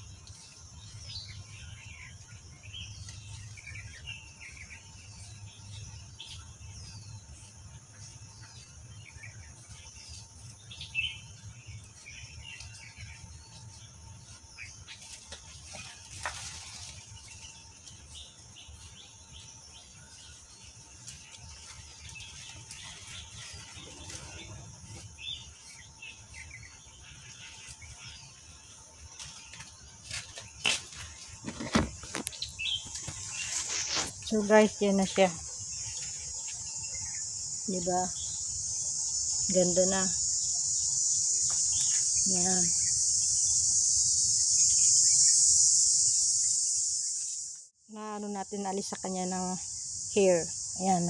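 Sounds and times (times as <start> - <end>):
birds chirping: 0.0 - 51.0
high insect drone: 0.0 - 51.0.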